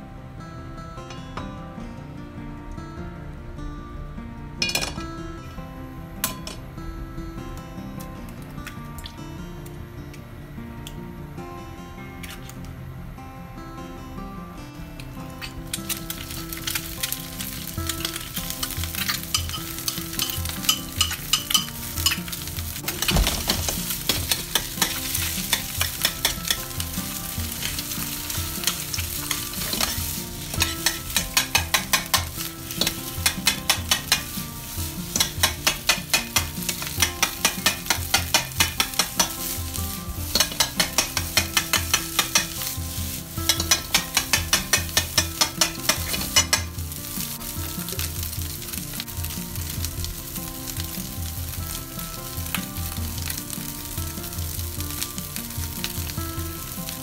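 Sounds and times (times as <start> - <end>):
rice sizzling in a frying pan: 15.3 - 57.0
spatula striking a pan: 18.0 - 46.9.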